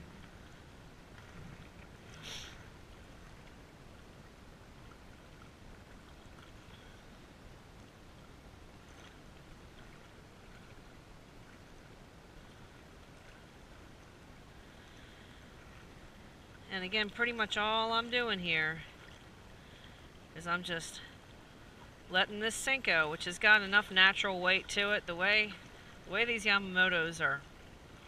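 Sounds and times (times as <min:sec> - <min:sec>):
low wind rumble on microphone: 0:00.0 - 0:28.0
waves lapping on rocky shore: 0:00.0 - 0:28.0
short sharp hiss: 0:02.2 - 0:02.6.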